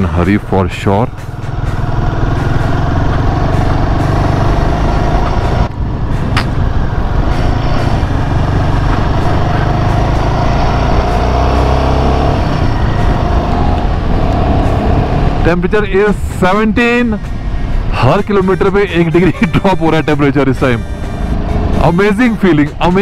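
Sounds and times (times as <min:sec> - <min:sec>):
motorcycle engine running: 0:00.0 - 0:15.6.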